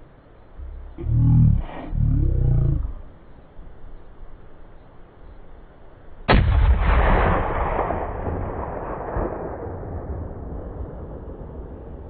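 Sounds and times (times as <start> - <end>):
rifle shot with rolling echo: 6.3 - 12.0.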